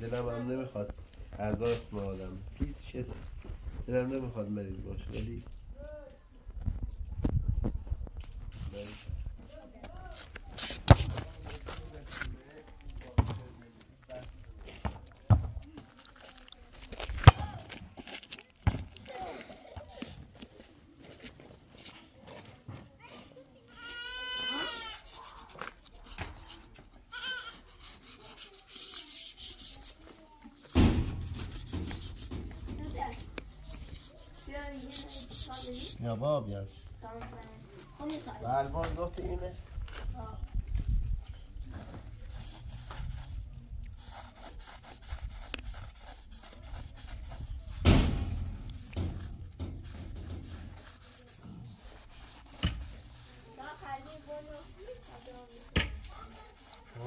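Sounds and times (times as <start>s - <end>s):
goat bleating: 23.7s - 25.1s, 27.1s - 27.7s
hand tool scraping brick: 24.5s - 36.0s, 42.3s - 57.0s
loud thump: 30.7s - 32.9s.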